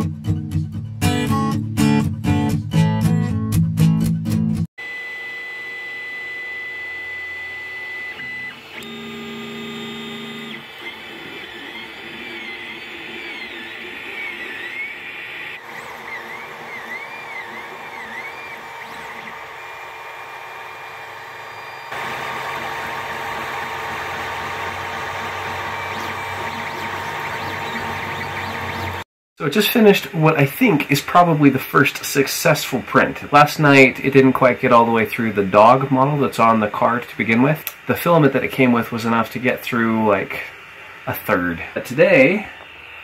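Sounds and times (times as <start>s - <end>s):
stepper motors whining: 4.8s - 29.0s
fan hum: 4.8s - 43.0s.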